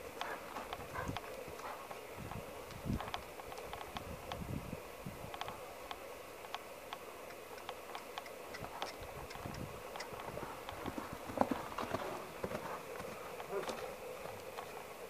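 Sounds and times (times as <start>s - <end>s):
horse hoofbeats on soft dirt: 0.0s - 4.0s, 7.3s - 15.0s.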